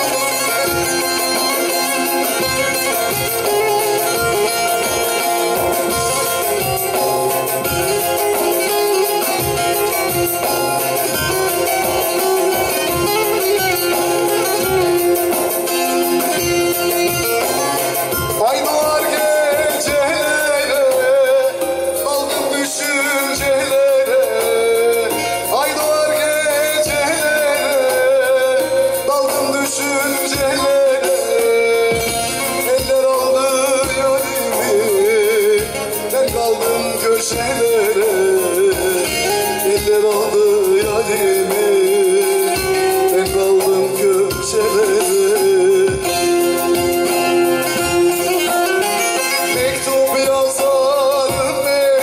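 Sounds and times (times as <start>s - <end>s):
long-necked lute playing: 0.0s - 18.6s
man singing folk song: 18.3s - 47.2s, 47.8s - 52.0s.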